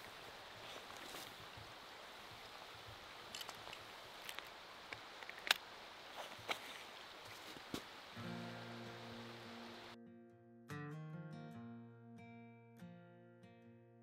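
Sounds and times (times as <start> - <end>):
steady faint hiss: 0.0 - 10.0.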